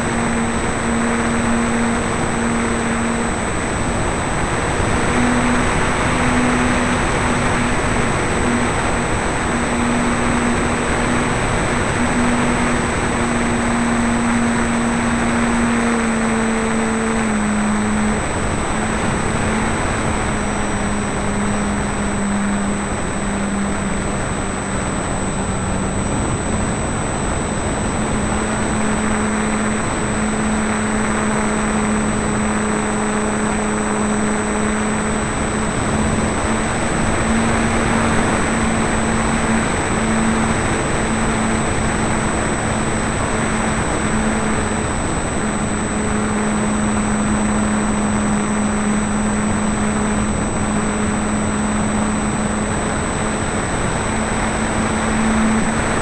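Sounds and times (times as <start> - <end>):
model airplane motor humming: 0.0 - 56.0
wind noise: 0.0 - 56.0.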